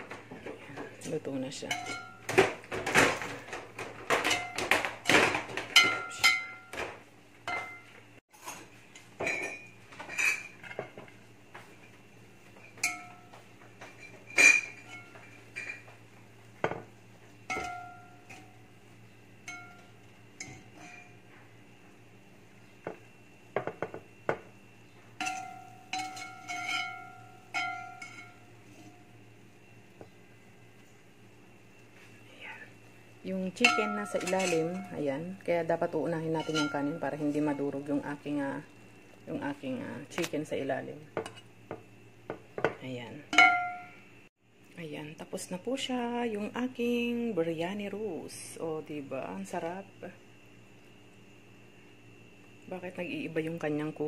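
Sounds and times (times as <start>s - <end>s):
strainer scraping metal pot: 25.2s - 27.2s.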